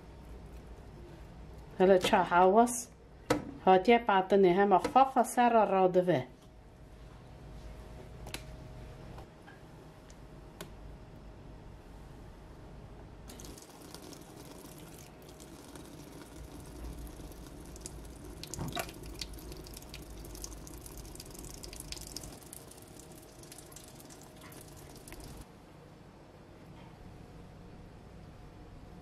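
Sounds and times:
water splashing and dripping: 13.3s - 25.4s
small wet clicks: 17.7s - 25.4s.

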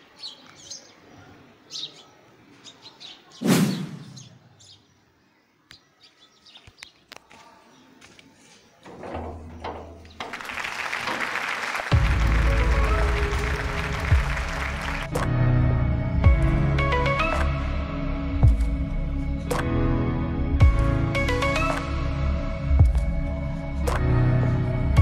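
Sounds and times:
bird chirps: 0.0s - 7.1s
music with heavy bass: 11.9s - 25.0s.

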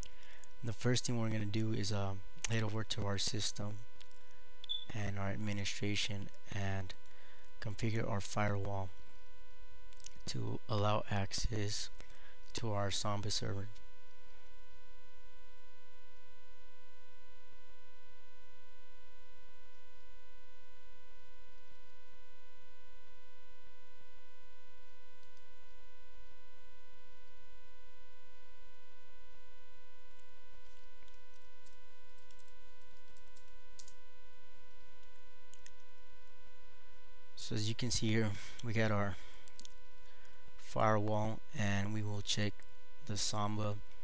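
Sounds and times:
electrical hum and whine: 0.0s - 44.0s
keyboard clicks: 30.6s - 34.0s, 35.5s - 35.8s.

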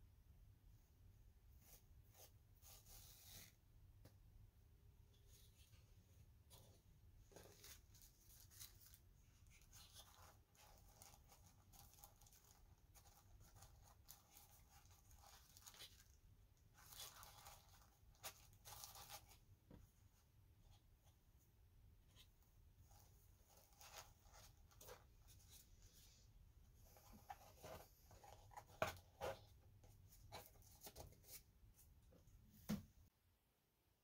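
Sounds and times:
packing material rustling: 7.3s - 19.4s.

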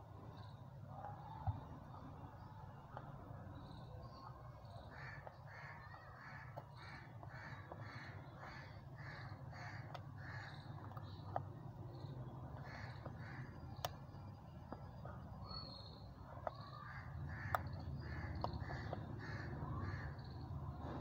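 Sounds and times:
crow cawing: 4.9s - 10.6s, 12.6s - 13.6s, 16.5s - 20.4s.

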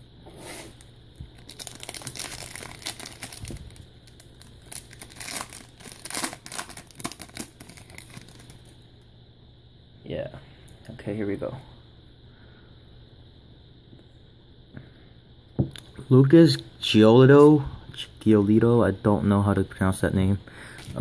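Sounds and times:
foil wrapper crinkling and tearing: 1.4s - 8.7s.

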